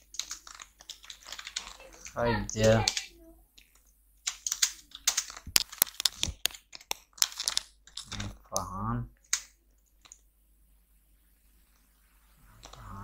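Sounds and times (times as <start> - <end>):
keyboard typing: 0.0 - 10.2.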